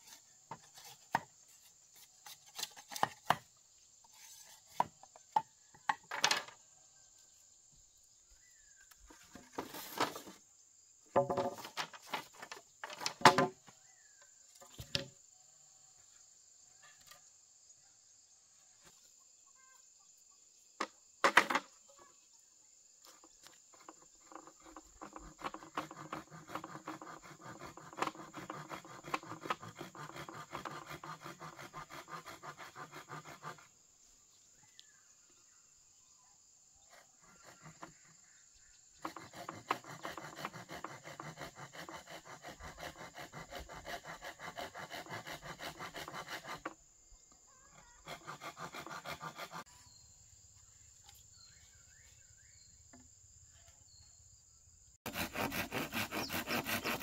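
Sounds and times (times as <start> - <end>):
insects buzzing: 19.3 - 57.0
rough rapid scraping: 23.7 - 33.7, 39.0 - 46.8, 47.9 - 49.7, 55.0 - 57.0.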